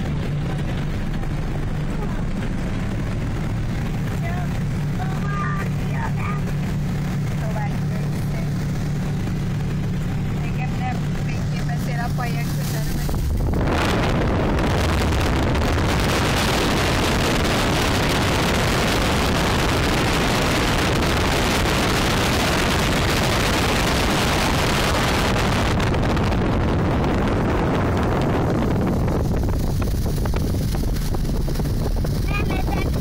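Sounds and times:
low engine drone: 0.0s - 33.0s
wind rushing over microphone: 0.0s - 33.0s.

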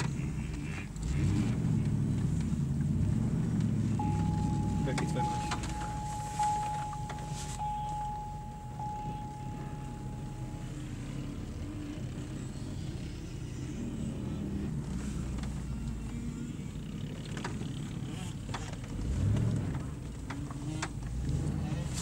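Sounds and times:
vehicle rumble inside car: 0.0s - 22.0s
thin high tone: 4.0s - 11.4s.

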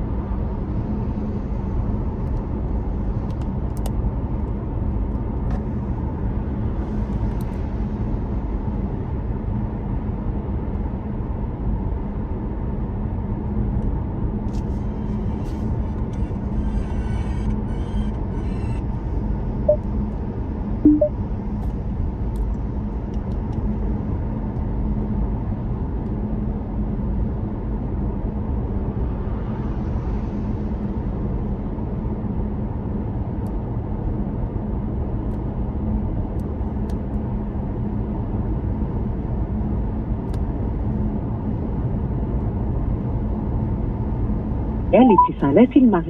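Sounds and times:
car road and engine rumble: 0.0s - 46.0s
short pitched blips: 20.9s - 21.1s.

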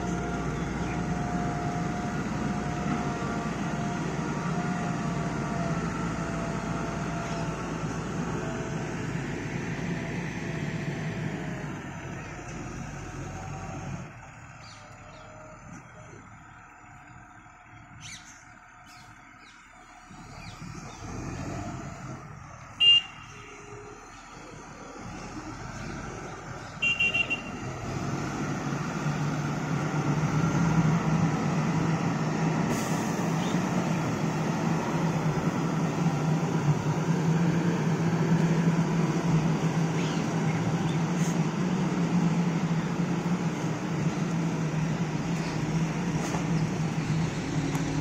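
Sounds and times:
diesel engine running: 0.0s - 48.0s
horn beep: 22.8s - 23.3s, 26.8s - 27.6s.

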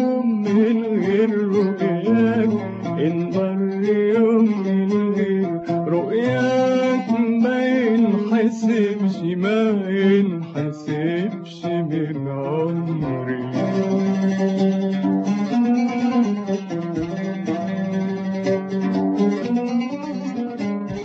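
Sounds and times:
man singing long wavering notes: 0.0s - 14.3s
plucked oud: 0.0s - 21.0s.

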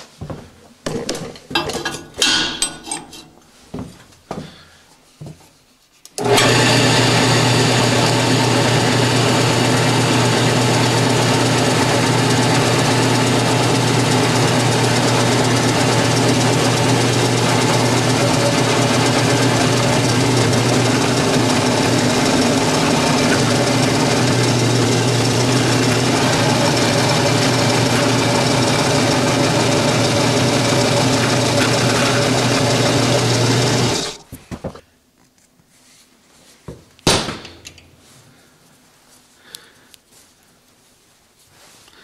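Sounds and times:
drill press drilling steel: 6.2s - 34.2s.

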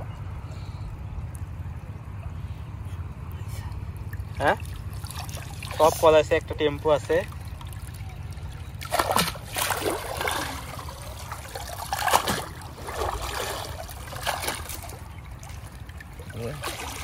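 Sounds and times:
water splashing and trickling: 0.0s - 17.0s
cast net swishing in water: 8.8s - 15.6s.

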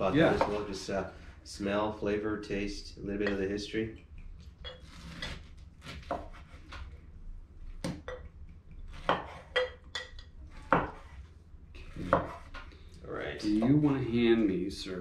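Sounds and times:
glass clinking: 4.6s - 4.9s, 8.0s - 8.4s, 9.5s - 10.3s.

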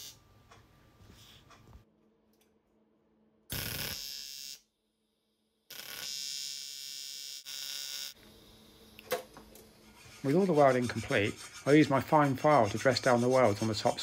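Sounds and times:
welding arc buzzing: 3.5s - 4.7s, 5.7s - 9.0s.

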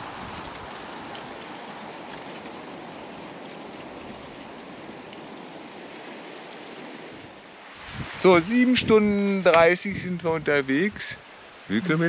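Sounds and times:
surf breaking on shore: 0.0s - 12.0s
faint ticks: 3.4s - 5.6s.

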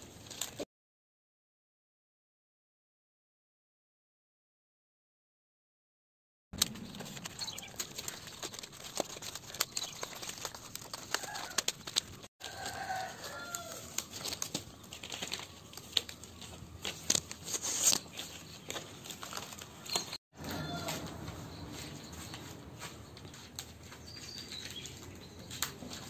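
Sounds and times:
dry palm fronds crackling: 0.0s - 0.6s, 6.6s - 26.0s.

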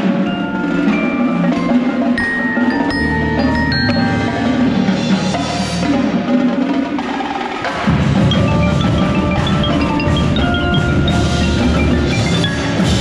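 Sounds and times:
marching drumline: 0.0s - 13.0s
xylophone quick runs: 0.7s - 5.6s, 8.1s - 13.0s.

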